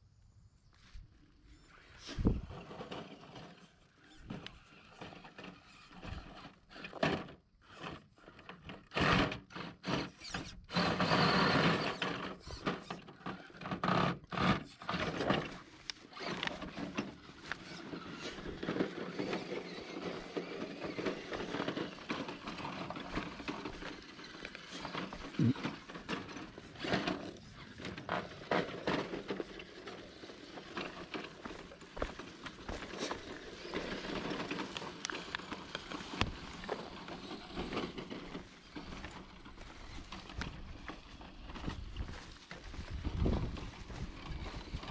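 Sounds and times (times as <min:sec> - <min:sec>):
small electric motor whining: 0:01.4 - 0:44.9
footsteps on gravel: 0:15.6 - 0:25.9, 0:29.2 - 0:44.9.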